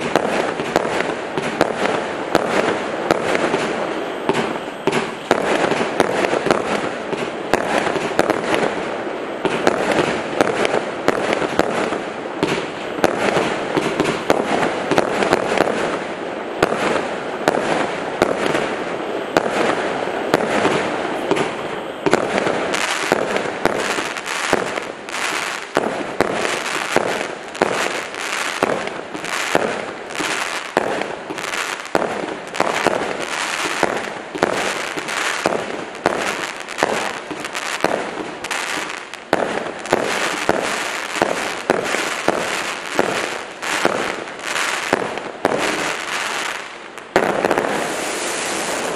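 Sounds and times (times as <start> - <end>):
firework cake firing bangs: 0.0 - 8.8, 9.4 - 48.9.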